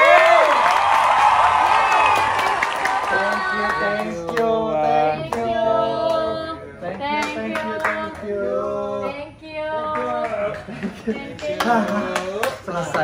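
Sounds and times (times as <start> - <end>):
woman singing slow song: 3.0 - 12.2.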